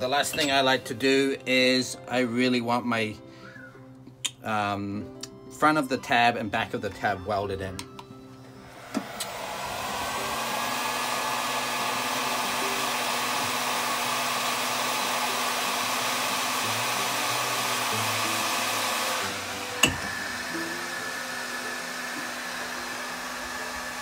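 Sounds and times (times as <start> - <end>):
heat gun fan whining: 7.8 - 24.0.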